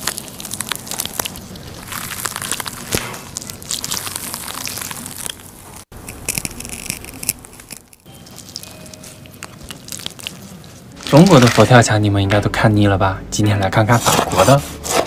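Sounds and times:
garlic skin crackling: 0:00.0 - 0:11.9.

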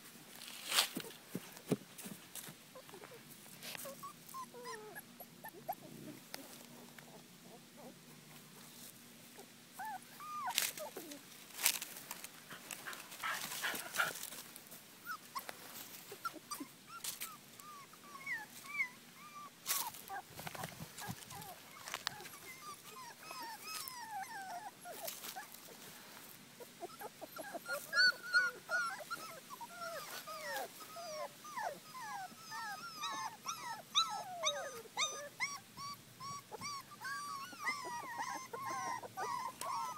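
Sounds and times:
puppies whimpering: 0:02.8 - 0:08.0, 0:09.4 - 0:11.3, 0:16.1 - 0:25.8, 0:26.6 - 0:39.9.

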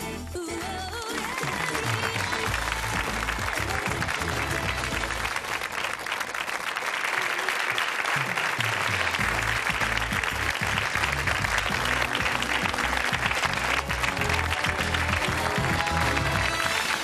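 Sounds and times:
theme music with bass line: 0:00.0 - 0:05.4, 0:08.9 - 0:17.0
studio audience applauding: 0:00.6 - 0:17.0.

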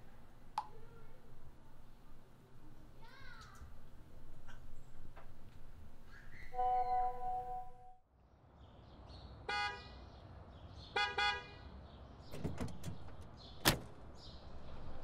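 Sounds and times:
car horn tooting: 0:06.6 - 0:08.0, 0:11.0 - 0:11.5.

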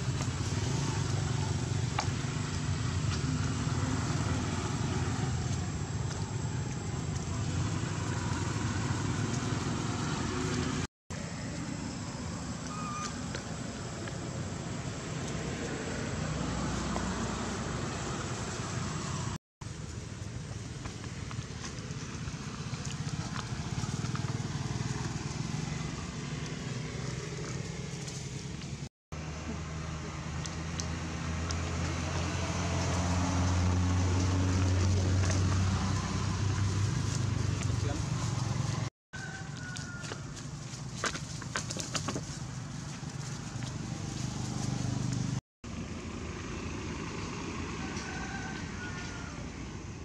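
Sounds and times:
engine rumbling: 0:00.0 - 0:50.0.

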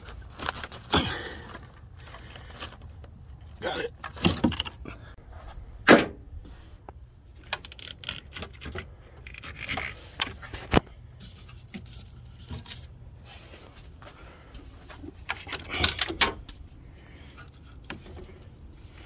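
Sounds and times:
clicks and scrapes of handling: 0:06.8 - 0:13.9.

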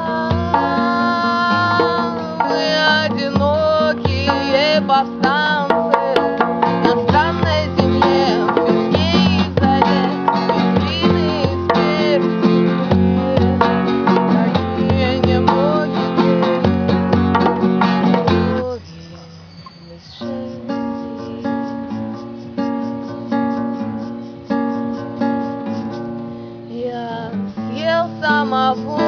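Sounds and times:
hand drum thumps: 0:00.0 - 0:18.6
acoustic guitar: 0:00.0 - 0:29.0.

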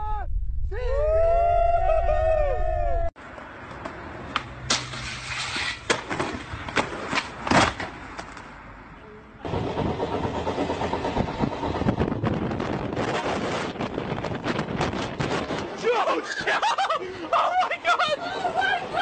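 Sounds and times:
moving train rush and rattle: 0:09.4 - 0:15.7.

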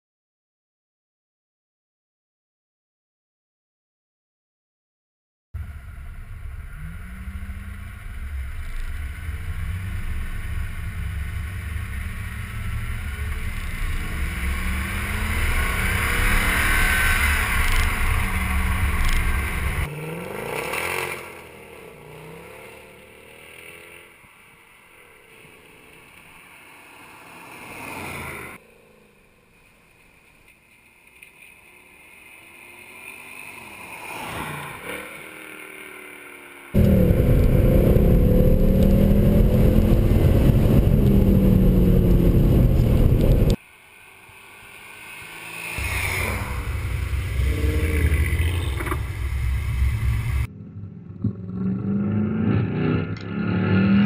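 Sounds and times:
car engine accelerating: 0:05.6 - 0:24.2, 0:36.8 - 0:43.6, 0:44.6 - 0:54.0.

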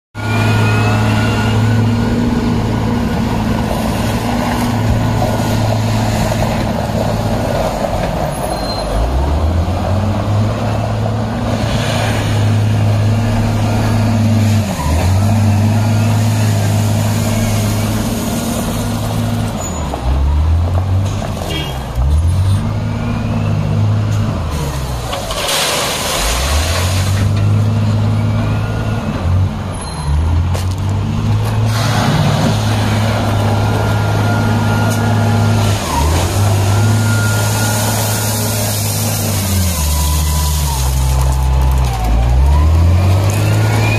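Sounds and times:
diesel engine of a loader: 0:00.2 - 0:43.9.

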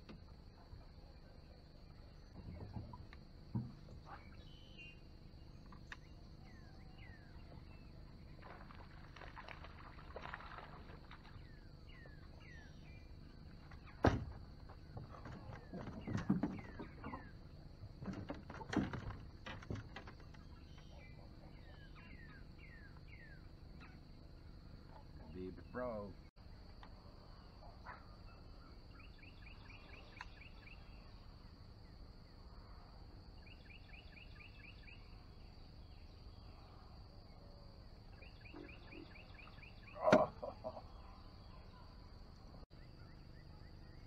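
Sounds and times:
birds chirping: 0:00.6 - 0:26.8, 0:38.0 - 0:42.0.

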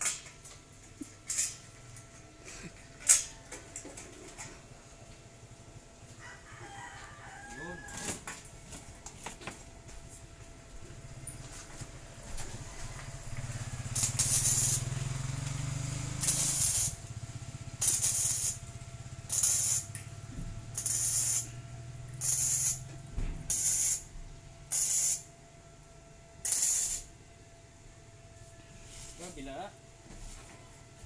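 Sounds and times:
welder crackling sizzle: 0:13.9 - 0:17.0, 0:17.8 - 0:20.0, 0:20.8 - 0:21.5, 0:22.2 - 0:22.8, 0:23.5 - 0:24.1, 0:24.7 - 0:25.3, 0:26.4 - 0:27.1.

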